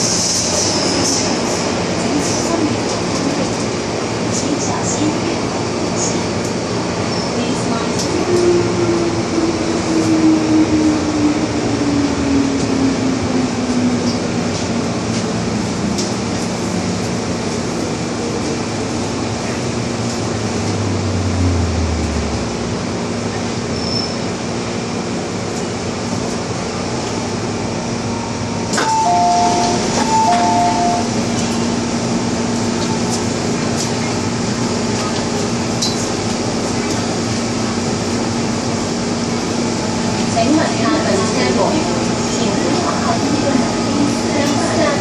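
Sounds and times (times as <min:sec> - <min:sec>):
train running: 0:00.0 - 0:45.0
two-tone beeps: 0:28.8 - 0:31.1.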